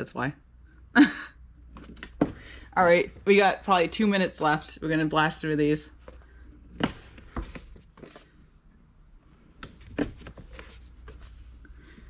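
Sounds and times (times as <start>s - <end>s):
books knocking on a shelf: 2.2s - 2.5s, 6.8s - 8.2s.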